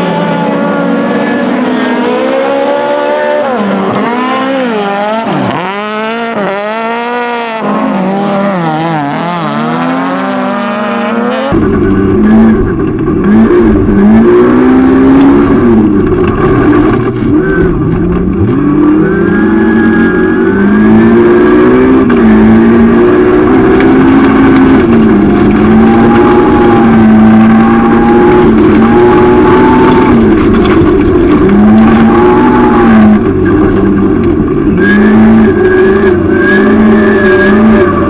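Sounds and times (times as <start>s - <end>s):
racing car engine from inside cabin: 0.0s - 38.0s
racing car engines revving: 0.0s - 38.0s.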